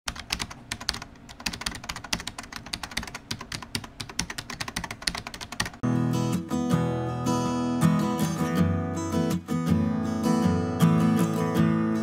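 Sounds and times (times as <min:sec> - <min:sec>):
keyboard typing: 0:00.1 - 0:05.8
acoustic guitar music: 0:05.8 - 0:12.0.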